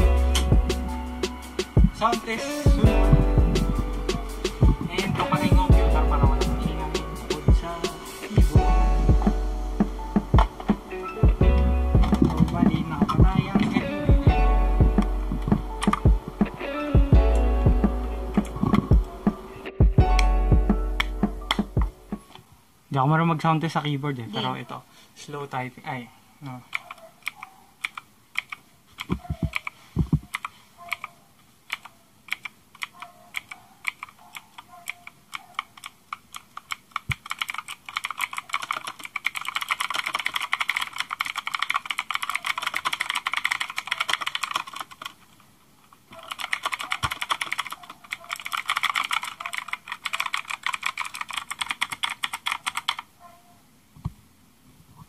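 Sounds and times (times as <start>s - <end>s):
deeper keyboard thuds: 2.7s - 6.8s, 10.2s - 19.1s
mechanical keyboard typing: 3.5s - 7.5s, 12.0s - 14.2s, 15.0s - 16.3s, 26.7s - 31.1s, 31.7s - 53.1s.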